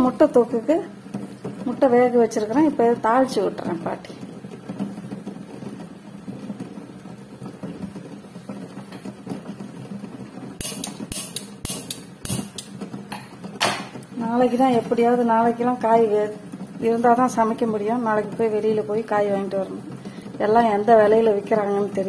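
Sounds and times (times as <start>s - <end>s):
gas burner hum: 0.0s - 22.0s
water boiling in a pot: 0.0s - 22.0s
sharp metallic knocks: 10.6s - 13.9s.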